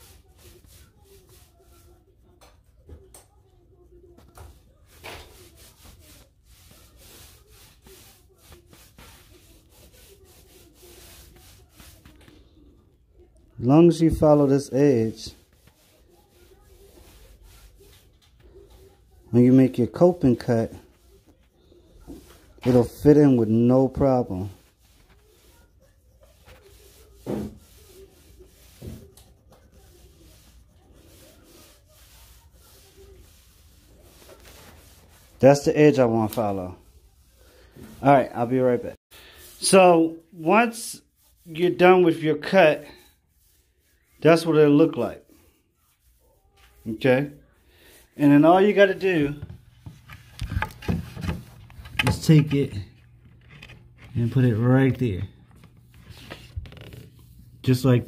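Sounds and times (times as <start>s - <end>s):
pencil scratching on wood: 4.4s - 12.4s, 14.0s - 35.4s.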